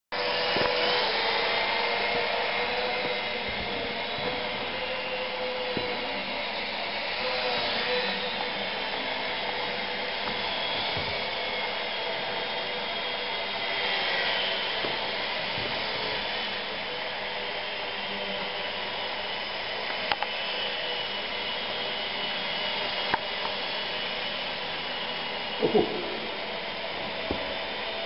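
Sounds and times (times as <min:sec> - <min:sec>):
small electric plane motors whining: 0:00.2 - 0:28.0.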